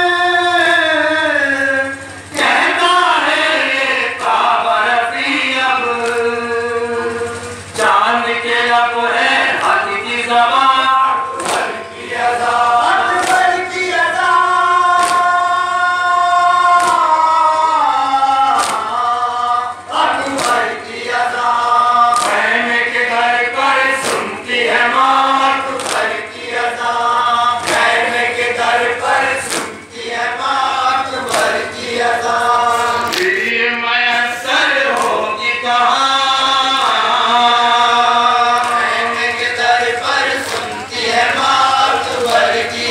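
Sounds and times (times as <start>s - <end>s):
men chanting in chorus through pa: 0.0s - 42.9s.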